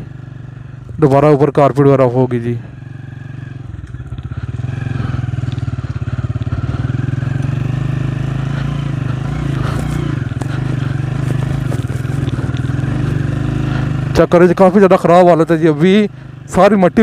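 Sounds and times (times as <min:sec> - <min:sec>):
motorcycle engine running: 0:00.0 - 0:17.0
clatters and knocks: 0:09.7 - 0:13.2.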